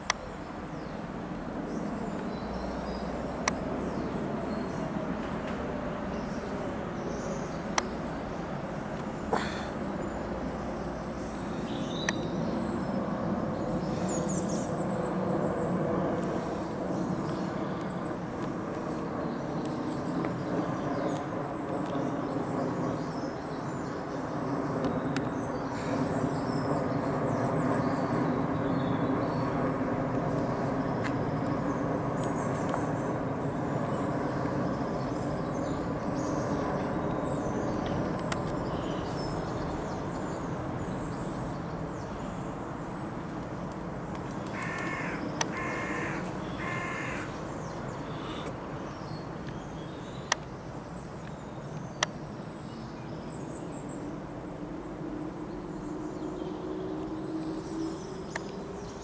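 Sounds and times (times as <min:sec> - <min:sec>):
jet airliner rumble overhead: 0:00.0 - 0:59.0
crow cawing: 0:44.5 - 0:47.3.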